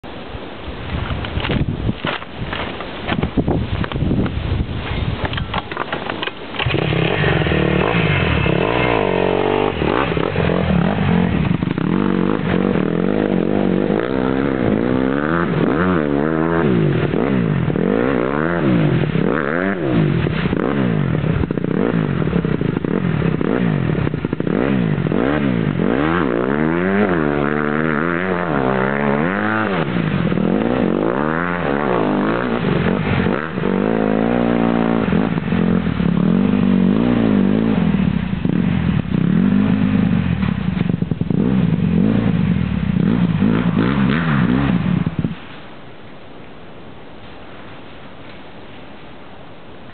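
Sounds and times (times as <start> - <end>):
dirt bike engine revving: 6.0 - 45.6.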